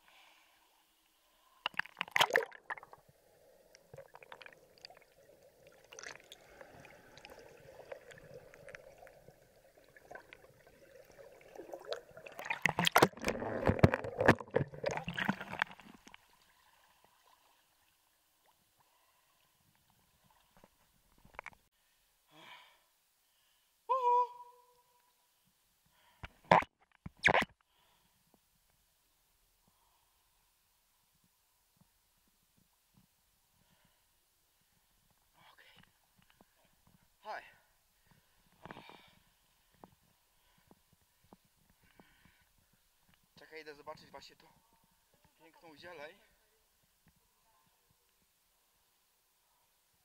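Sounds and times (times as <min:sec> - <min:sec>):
water gurgling underwater: 0:03.7 - 0:16.2.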